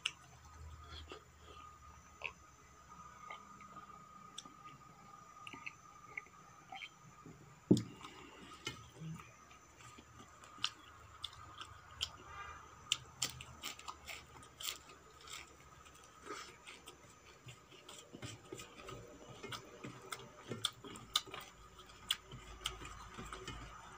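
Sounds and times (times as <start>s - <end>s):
chewing: 5.4s - 7.0s, 12.8s - 23.9s.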